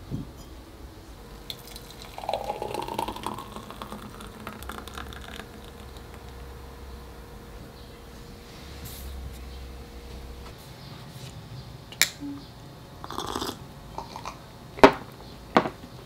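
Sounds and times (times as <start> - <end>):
smoothie pouring gurgle: 1.5 - 6.8.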